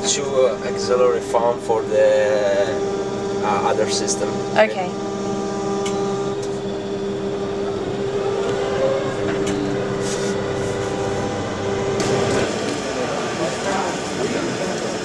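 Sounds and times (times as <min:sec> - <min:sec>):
tractor electric hum and whine: 0:00.0 - 0:15.0.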